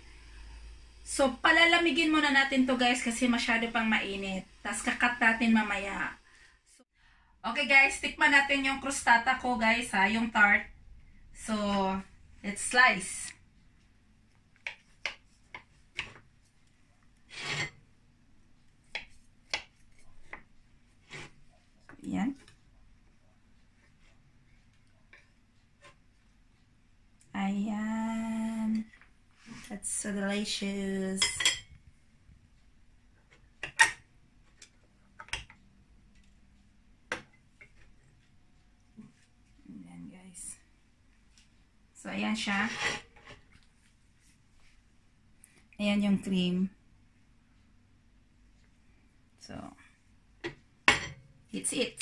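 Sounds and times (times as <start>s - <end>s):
metal spatula scraping crisp crust: 17.3s - 17.8s, 21.0s - 21.4s, 42.4s - 43.4s.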